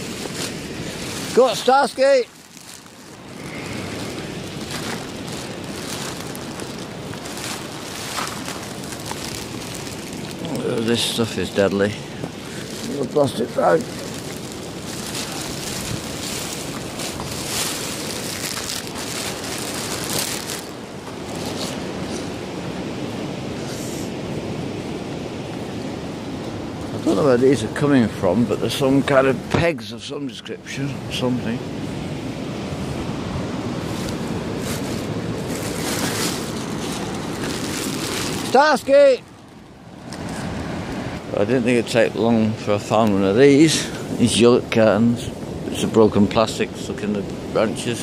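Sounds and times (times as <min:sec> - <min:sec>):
wind on the microphone: 0:00.0 - 0:29.7
waves breaking on a beach: 0:00.0 - 0:48.0.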